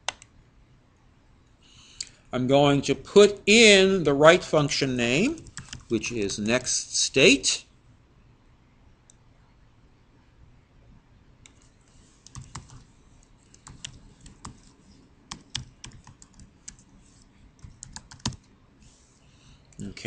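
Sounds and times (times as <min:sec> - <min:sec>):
keyboard typing: 0:05.4 - 0:06.0, 0:11.5 - 0:16.9, 0:17.6 - 0:18.5.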